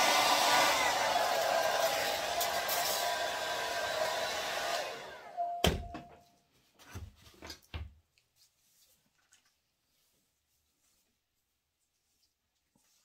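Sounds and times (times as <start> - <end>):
hair dryer blowing: 0.0 - 5.5.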